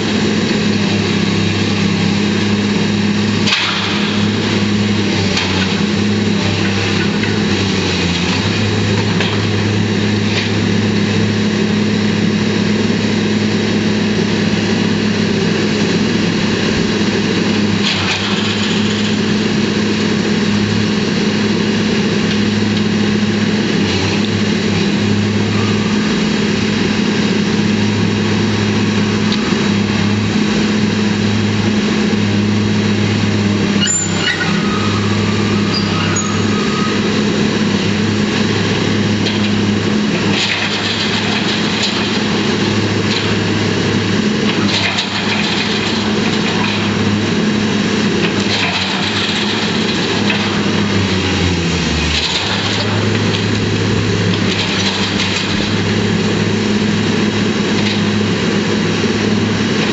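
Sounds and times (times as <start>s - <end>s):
excavator diesel engine under load: 0.0s - 59.9s
metal and rubble scraping: 16.5s - 20.6s, 33.4s - 59.9s
brief high squeal: 25.5s - 26.2s, 33.8s - 37.2s.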